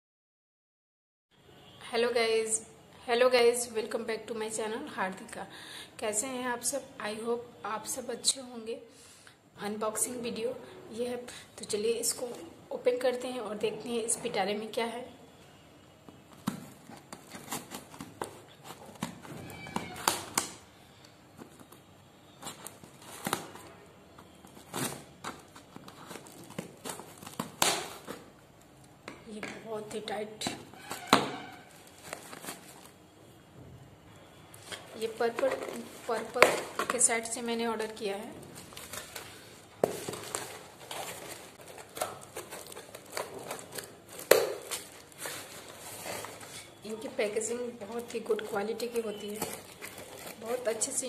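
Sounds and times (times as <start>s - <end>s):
packaging crinkling and rustling: 16.1s - 28.6s, 29.9s - 33.1s, 34.5s - 51.0s
cardboard box rustling and scraping: 44.9s - 46.8s.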